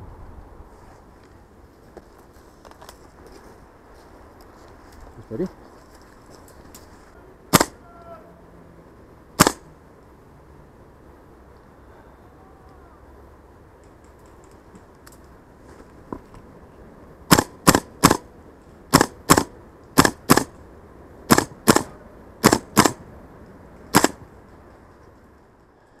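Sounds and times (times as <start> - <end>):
airsoft gun shots: 7.5 - 7.8, 9.4 - 9.7, 17.3 - 18.3, 18.9 - 20.5, 21.3 - 23.0, 23.9 - 24.2.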